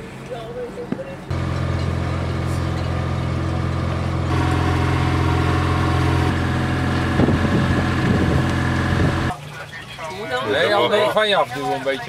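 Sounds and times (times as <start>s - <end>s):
boat engine humming: 1.2s - 9.4s.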